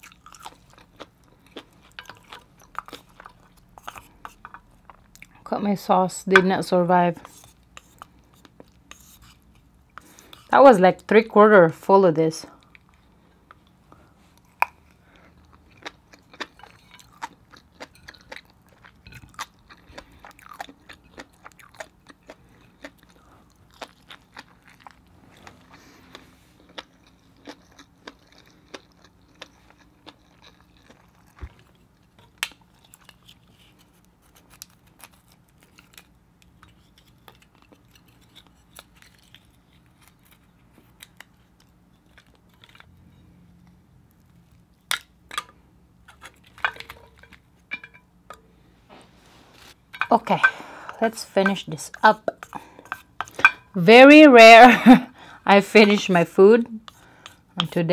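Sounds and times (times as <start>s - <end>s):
wet chewing and mouth smacks: 0.0s - 5.4s, 12.6s - 43.0s.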